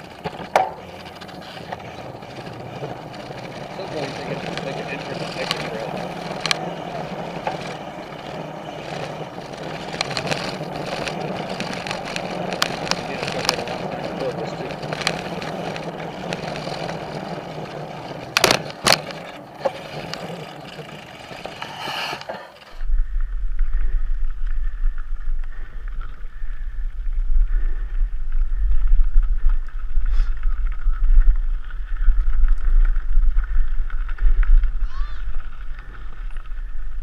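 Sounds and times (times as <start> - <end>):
bike rolling on wooden boardwalk: 0.0 - 37.0
wind rumble on microphone: 22.7 - 37.0.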